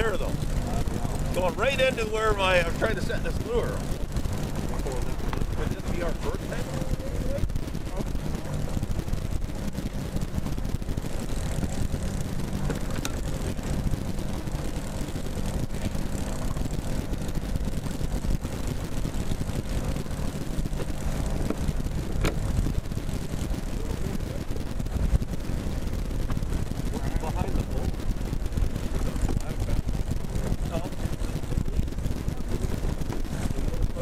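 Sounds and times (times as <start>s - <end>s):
outboard engine droning: 0.0s - 34.0s
wind and water rumble: 0.0s - 34.0s.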